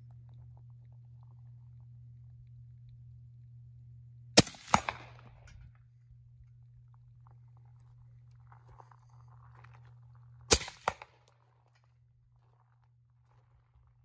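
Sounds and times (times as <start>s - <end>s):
low hum: 0.0s - 14.0s
suppressed rifle shot: 4.4s - 5.5s, 10.5s - 11.2s
bullet striking steel target: 4.4s - 5.7s, 10.5s - 11.2s.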